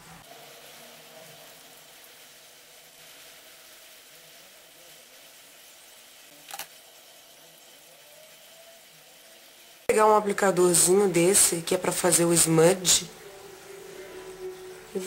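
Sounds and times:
faint steady hum: 0:05.8 - 0:15.0.

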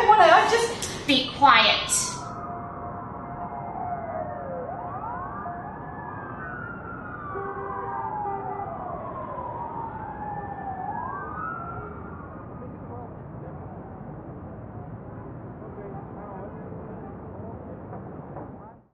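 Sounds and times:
emergency sirens wailing: 0:00.0 - 0:16.9
steady background noise: 0:00.0 - 0:18.9.

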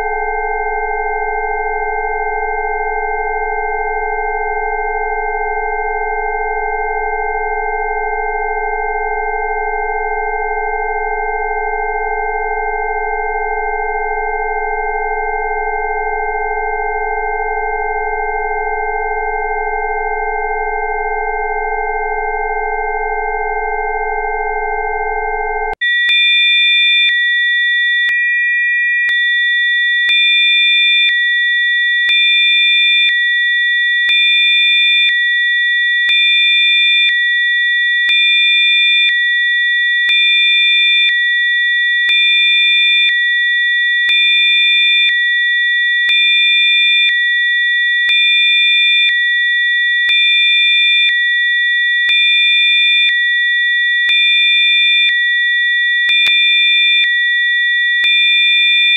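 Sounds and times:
steady sine tones: 0:00.0 - 0:25.8.

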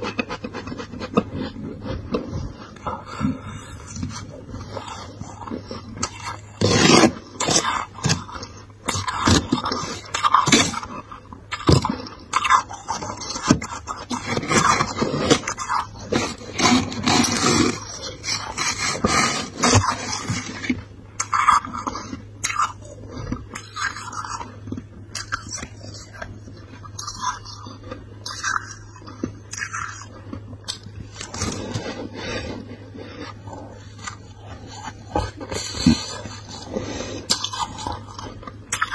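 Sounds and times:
frost crunching and scraping: 0:00.0 - 0:38.9
steady low hum: 0:00.0 - 0:38.9.

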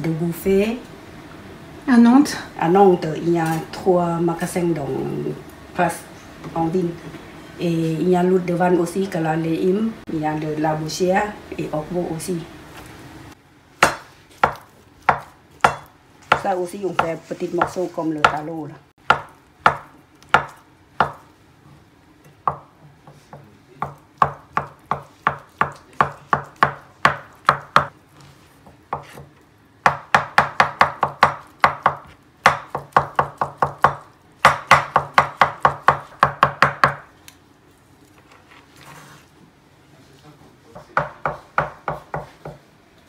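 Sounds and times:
cleaver chopping on wooden board: 0:13.8 - 0:18.4, 0:19.0 - 0:21.2, 0:23.3 - 0:27.9, 0:29.9 - 0:37.0.

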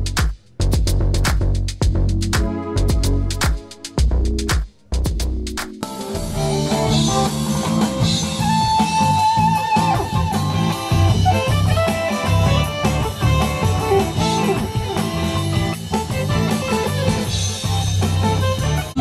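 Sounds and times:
live rock band playing: 0:05.8 - 0:19.0.

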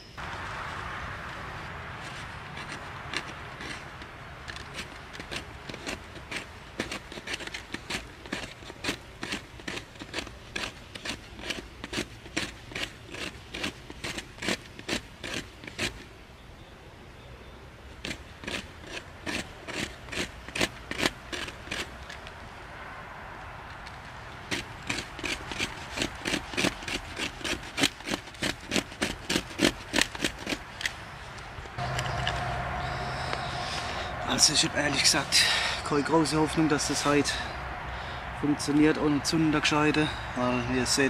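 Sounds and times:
knife scraping wood: 0:01.9 - 0:16.1, 0:18.0 - 0:22.4, 0:24.3 - 0:31.0.

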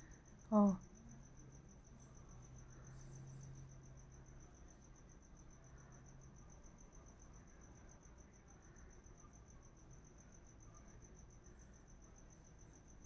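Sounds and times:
cricket chirping: 0:00.0 - 0:13.0
low background hiss: 0:00.0 - 0:13.0.

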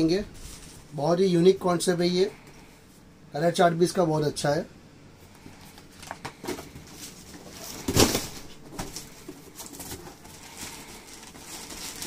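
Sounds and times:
packaging rustling and clicking: 0:05.8 - 0:12.0.

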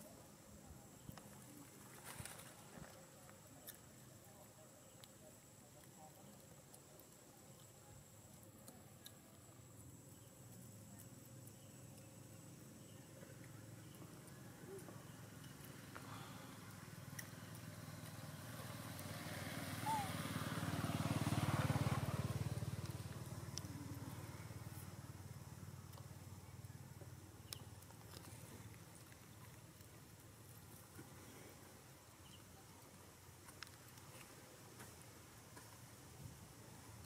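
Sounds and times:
vehicle engine rumble passing: 0:15.2 - 0:26.6.

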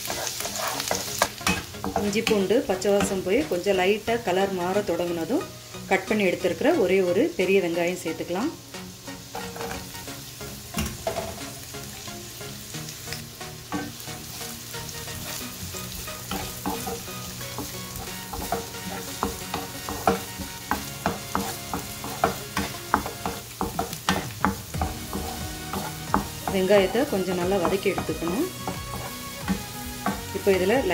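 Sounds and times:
spatula knocking and scraping pan: 0:00.0 - 0:03.4, 0:09.3 - 0:09.9, 0:15.2 - 0:30.9
onion frying in oil: 0:00.0 - 0:30.9.

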